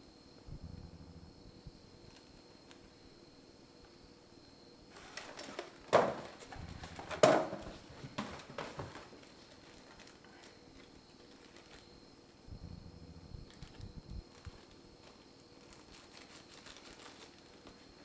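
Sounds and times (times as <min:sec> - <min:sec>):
handling rustles: 0:04.9 - 0:12.0, 0:13.4 - 0:18.0.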